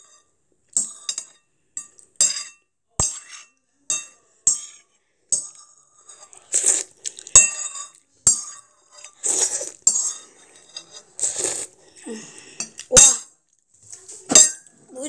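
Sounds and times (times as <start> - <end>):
metal spoon scraping ceramic bowl: 0.0 - 11.8
person slurping sauce: 6.2 - 7.3, 9.0 - 12.9.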